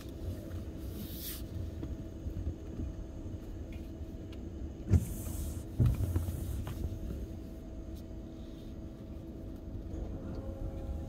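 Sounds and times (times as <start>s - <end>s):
car cabin rumble: 0.0s - 11.0s
windshield wiper swish and thump: 4.9s - 7.2s.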